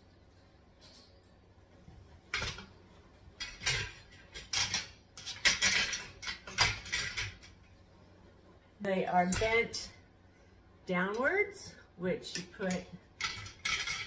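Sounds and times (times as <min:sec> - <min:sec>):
wire shelf rattling on metal frame: 0:03.3 - 0:07.6, 0:12.7 - 0:14.0.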